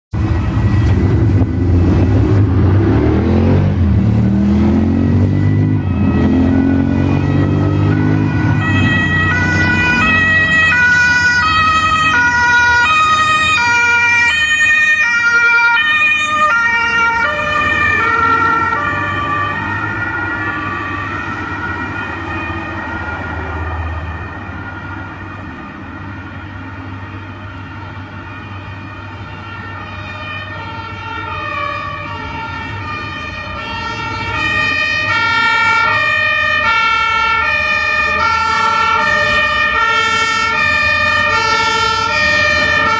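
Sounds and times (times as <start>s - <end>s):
street traffic: 0.1s - 42.9s
two-tone fire engine sirens: 0.1s - 42.9s.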